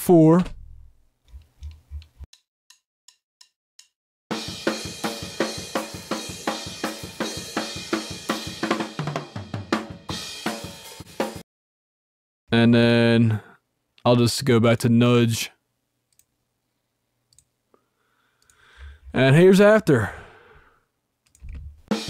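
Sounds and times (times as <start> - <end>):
soft count-in ticks: 1.4 - 4.0, 18.4 - 18.6
drum kit playing: 4.3 - 11.4.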